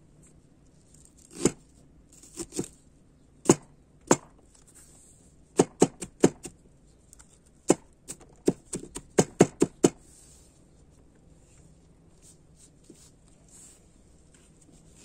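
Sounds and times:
cleaver chopping on wooden board: 3.4 - 4.3, 5.6 - 6.6, 7.7 - 10.0.

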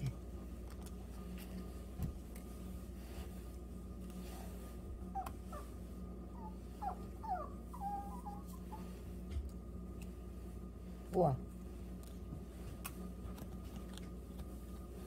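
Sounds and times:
dog whimpering: 5.1 - 8.9.

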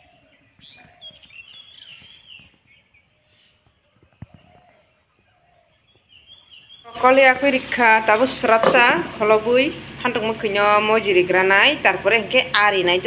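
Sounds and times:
small birds chirping: 0.0 - 8.6.

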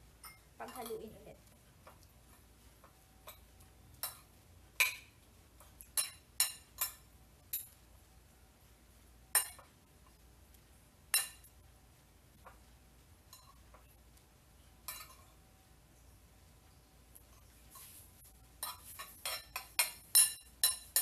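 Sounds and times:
cutlery clinking on ceramic plate: 9.4 - 9.7, 11.2 - 11.5, 14.9 - 15.3, 18.6 - 21.0.

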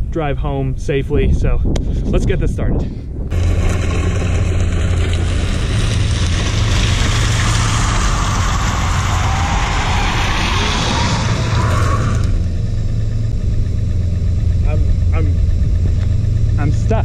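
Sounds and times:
wind rumble on microphone: 0.0 - 13.5
car driving past: 3.3 - 12.5
faint rising engine note: 3.3 - 17.0.

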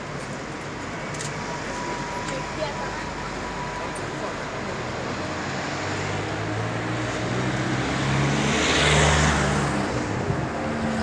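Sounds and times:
vehicle passing by: 5.0 - 11.0.

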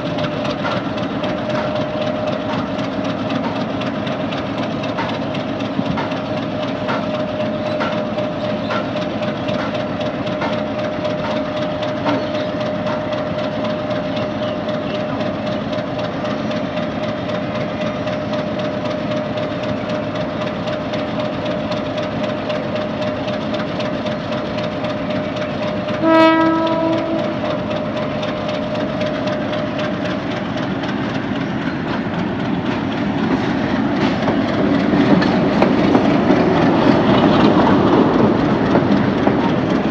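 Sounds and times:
locomotive engine and rail noise: 0.0 - 39.9
train horn blast: 25.9 - 27.6.

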